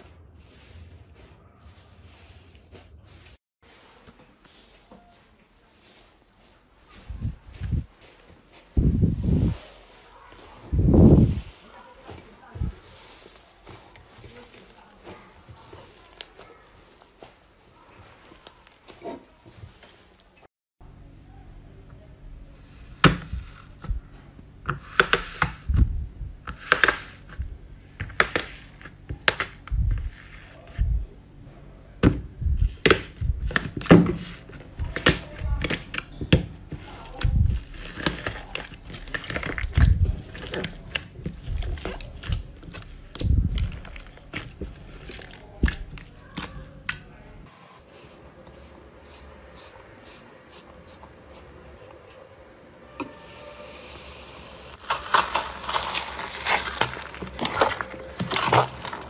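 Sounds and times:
soft squishing thuds: 31.9s - 47.2s
slime popping and crackling: 37.1s - 46.6s, 54.7s - 59.0s.

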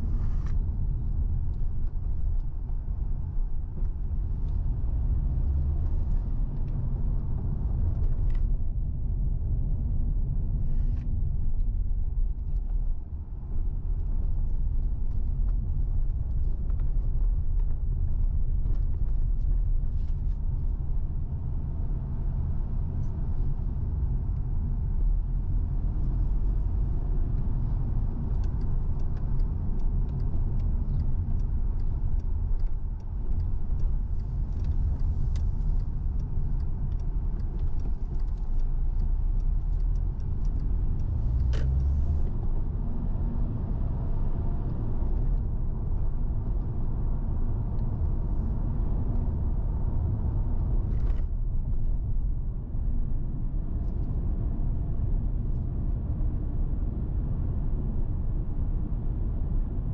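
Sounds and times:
car engine and tyre rumble: 0.0s - 59.9s
light ticks: 24.2s - 42.5s.

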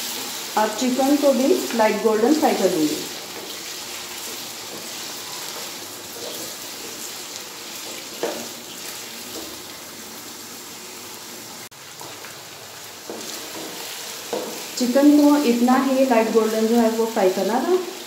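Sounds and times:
food sizzling in hot oil: 0.0s - 18.0s
wooden spatula scraping: 2.3s - 9.7s.

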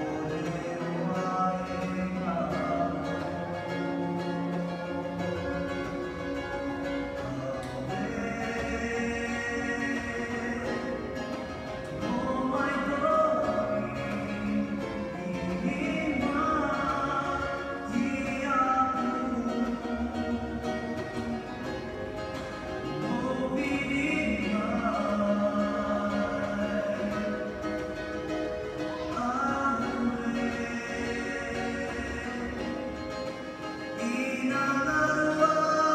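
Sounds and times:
plucked strings: 0.0s - 35.9s
voices singing: 22.9s - 35.9s.

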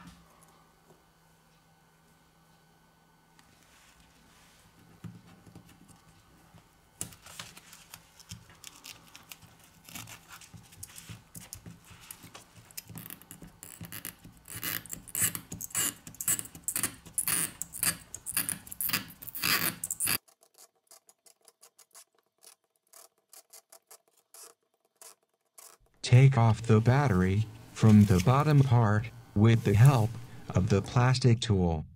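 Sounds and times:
gloved fingers rubbing: 7.5s - 25.9s
hand tool scraping and clicking: 12.1s - 25.8s.

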